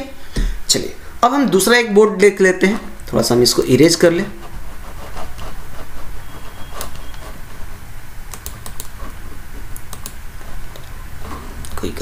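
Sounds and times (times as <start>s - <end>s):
keyboard and mouse clicks: 5.3s - 7.6s, 8.3s - 11.8s.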